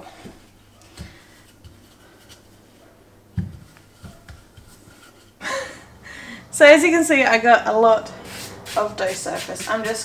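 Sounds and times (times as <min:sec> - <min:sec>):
rolling pin rolling dough: 0:01.0 - 0:05.4, 0:08.2 - 0:10.0
soft thumps: 0:03.4 - 0:04.7.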